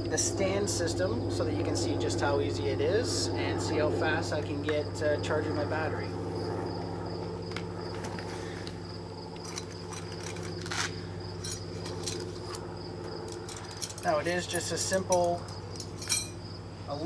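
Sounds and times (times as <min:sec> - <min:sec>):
crickets chirring: 0:00.0 - 0:17.0
steady low hum: 0:00.0 - 0:17.0
clicks and rustles of handling: 0:09.4 - 0:16.3.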